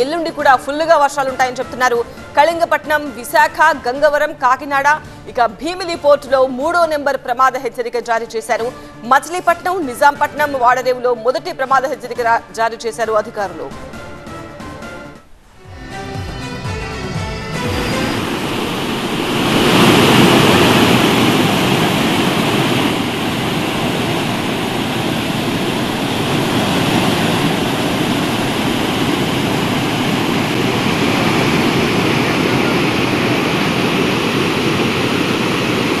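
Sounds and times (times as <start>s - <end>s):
floodwater rushing: 17.5s - 36.0s.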